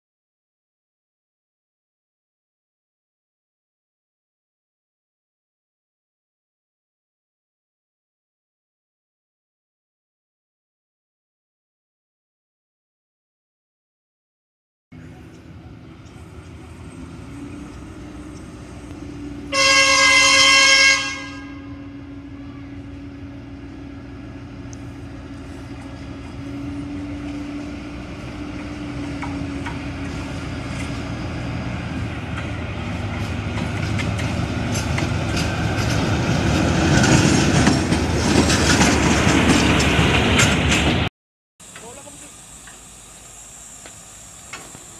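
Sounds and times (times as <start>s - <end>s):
locomotive engine droning: 14.9s - 44.9s
rail noise: 14.9s - 44.9s
locomotive horn blast: 19.4s - 22.9s
wheels clicking on rails: 24.6s - 44.9s.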